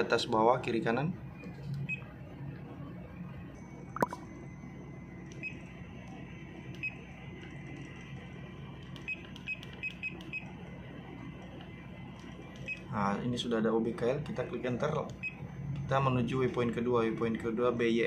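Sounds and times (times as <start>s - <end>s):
short electronic key beeps: 3.9s - 4.2s.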